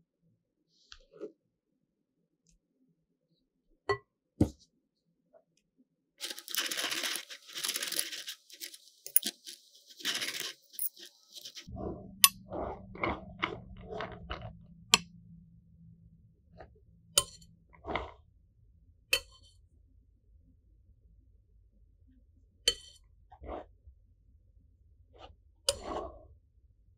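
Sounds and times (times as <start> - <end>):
spatula scraping cream: 6.2 - 11.7.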